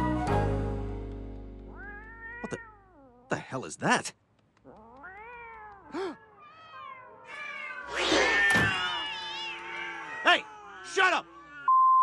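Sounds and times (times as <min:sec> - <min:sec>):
cats yowling: 0:01.7 - 0:03.4, 0:04.6 - 0:11.7.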